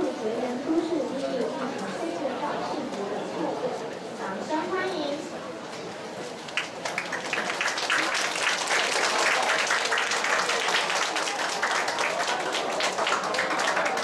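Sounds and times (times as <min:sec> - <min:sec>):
voices: 0:00.0 - 0:06.0
audience applause: 0:06.6 - 0:14.0.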